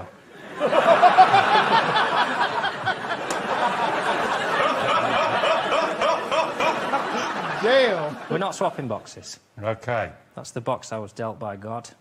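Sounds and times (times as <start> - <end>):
crowd laughing: 0.3 - 8.8
man laughing heartily: 0.6 - 8.0.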